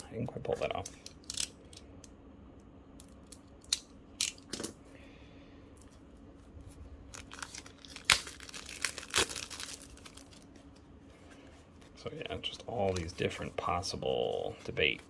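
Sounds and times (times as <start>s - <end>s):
plastic wrap crackling and snapping: 7.0s - 10.8s.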